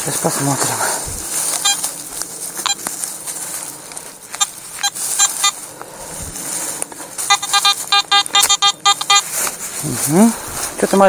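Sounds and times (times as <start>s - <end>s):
metal detector beeps: 1.6s - 1.9s, 2.6s - 2.9s, 4.3s - 5.6s, 7.2s - 9.5s.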